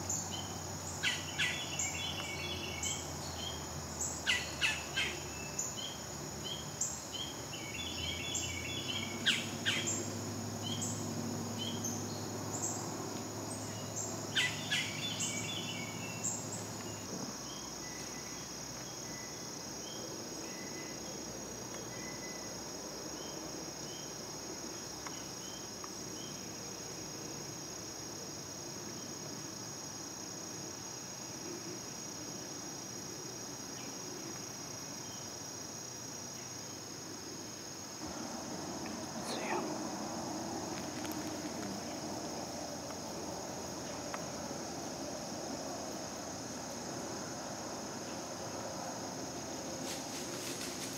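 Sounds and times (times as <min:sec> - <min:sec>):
insects droning: 0:00.0 - 0:50.9.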